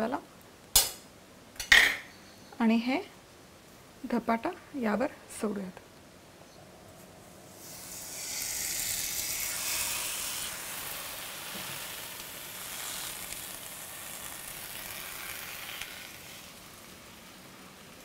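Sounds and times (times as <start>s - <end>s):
dough sizzling on hot griddle: 7.5s - 18.0s.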